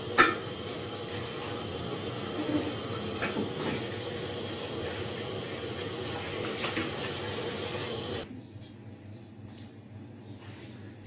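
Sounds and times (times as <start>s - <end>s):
milk boiling in a pot: 0.0s - 8.3s.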